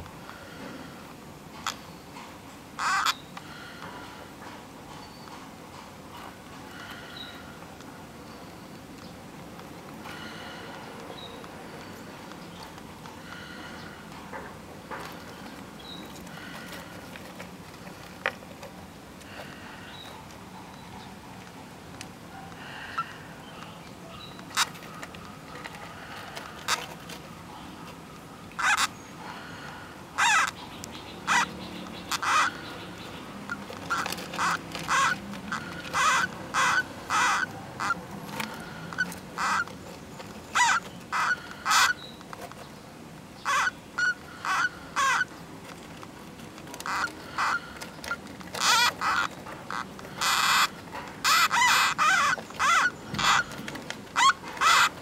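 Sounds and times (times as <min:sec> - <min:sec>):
hamster pups squeaking: 0:33.5 - 0:39.8, 0:46.8 - 0:55.0.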